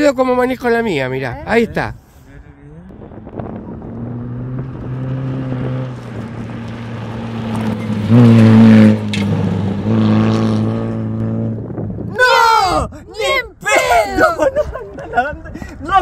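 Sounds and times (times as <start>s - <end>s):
tyres on gravel road: 0.0s - 12.5s
van engine at high revs: 3.0s - 11.8s.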